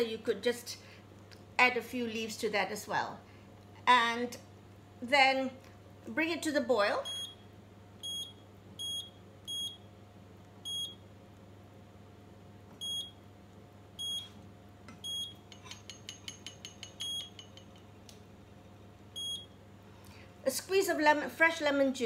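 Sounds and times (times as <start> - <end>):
induction hob beeping: 15.0 - 17.6.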